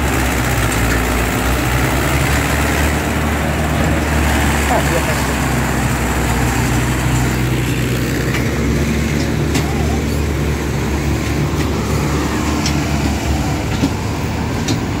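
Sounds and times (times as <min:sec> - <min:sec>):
tractor diesel engine under load: 0:00.0 - 0:15.0.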